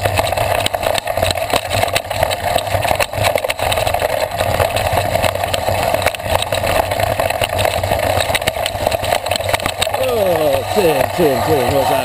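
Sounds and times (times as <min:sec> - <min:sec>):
bike knocking and rattling: 0:00.0 - 0:12.0
bike tyres rumbling on dirt trail: 0:00.0 - 0:12.0.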